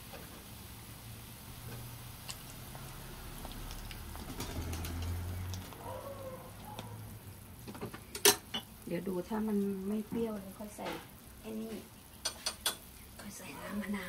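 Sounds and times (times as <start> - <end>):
soup bubbling with pops: 1.5 - 5.9.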